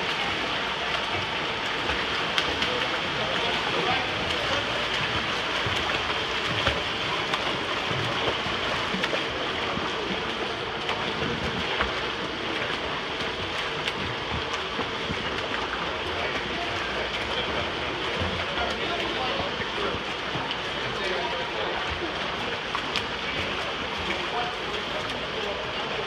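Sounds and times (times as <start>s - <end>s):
swimmers splashing water: 0.0s - 26.0s
sharp water slaps: 12.6s - 15.6s.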